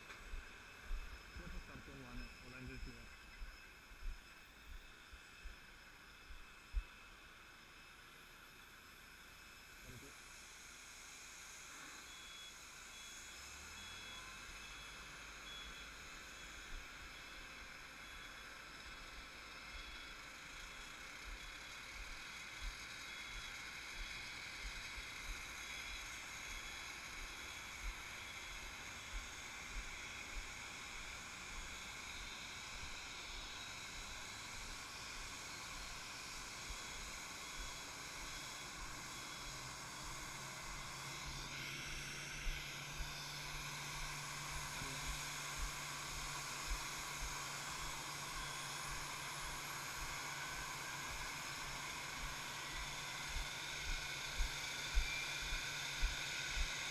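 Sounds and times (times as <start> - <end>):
jet engine hiss with high tones: 0.0 - 56.9
jet engine spooling up: 21.6 - 56.9.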